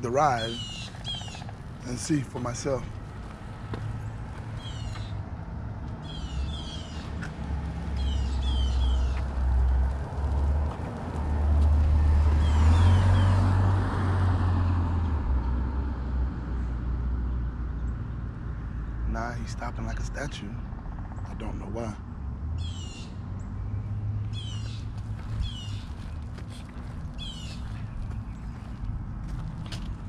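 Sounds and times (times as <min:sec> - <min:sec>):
vehicle passing: 0:00.0 - 0:17.3, 0:22.1 - 0:30.0
street rumble: 0:00.0 - 0:30.0
bird chirping: 0:00.1 - 0:03.3, 0:04.0 - 0:05.2, 0:06.0 - 0:07.2, 0:07.9 - 0:09.3, 0:24.3 - 0:28.9.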